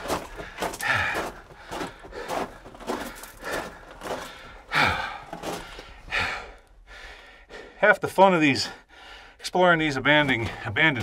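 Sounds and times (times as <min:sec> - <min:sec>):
footsteps crunching on rock rubble: 0:00.0 - 0:06.4
man breathing: 0:00.0 - 0:07.8, 0:08.7 - 0:09.4.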